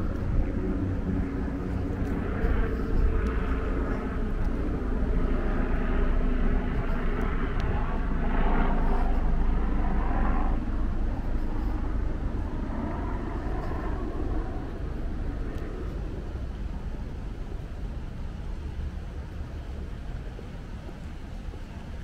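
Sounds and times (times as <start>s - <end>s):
low city rumble: 0.0s - 22.0s.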